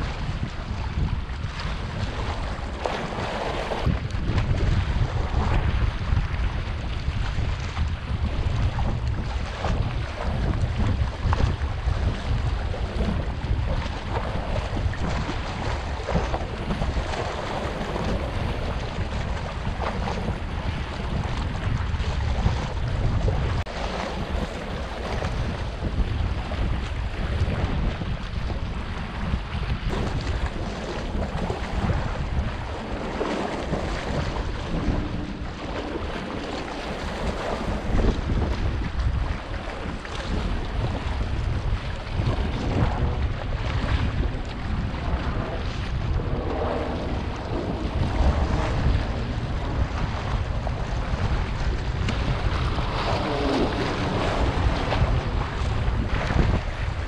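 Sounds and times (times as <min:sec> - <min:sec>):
waves lapping against rocks: 0:00.0 - 0:57.0
wind buffeting microphone: 0:00.0 - 0:57.0.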